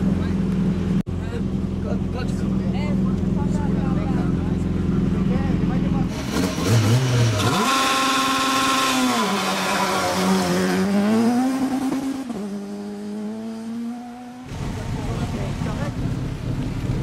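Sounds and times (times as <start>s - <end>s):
rally car engine accelerating: 4.7s - 17.0s.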